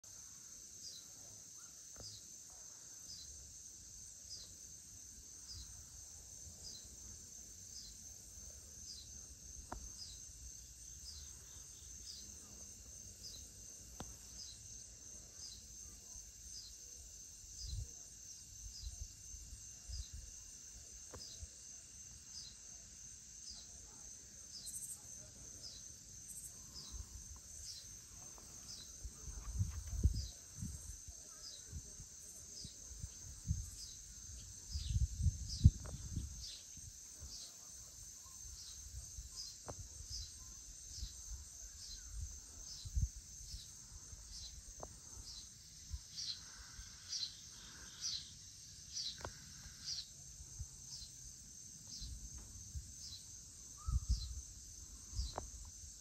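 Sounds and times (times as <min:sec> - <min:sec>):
insect chirping: 0:00.0 - 0:56.0
insect trilling: 0:53.0 - 0:55.7.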